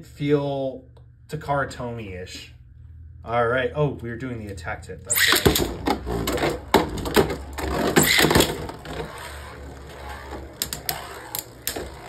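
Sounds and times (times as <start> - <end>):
spinning tops rattling clatter: 5.1 - 12.0
spinning tops whirring: 5.1 - 12.0
tops clacking together: 5.1 - 12.0.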